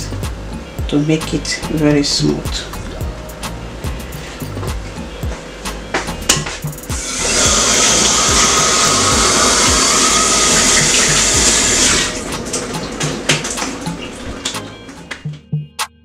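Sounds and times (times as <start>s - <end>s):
kitchen tap running: 7.0s - 14.6s.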